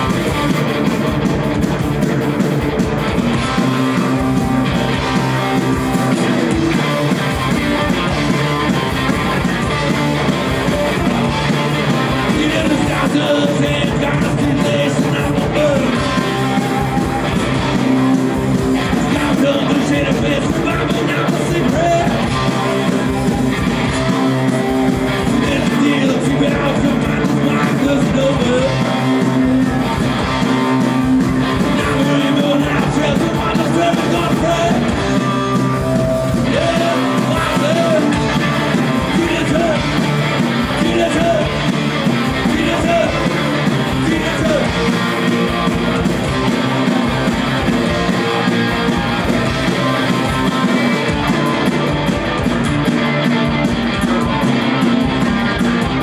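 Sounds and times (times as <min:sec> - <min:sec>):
drum beat: 0:00.0 - 0:56.0
electric guitar: 0:00.0 - 0:56.0
person singing: 0:12.1 - 0:18.1, 0:18.7 - 0:23.2, 0:23.8 - 0:30.8, 0:31.4 - 0:40.0.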